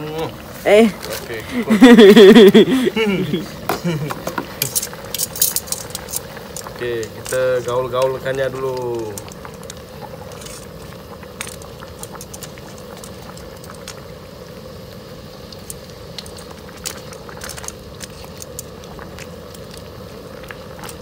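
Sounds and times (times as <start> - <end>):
meat simmering in sauce: 0.0 - 21.0
tongs clicking and scraping wok: 4.1 - 14.0.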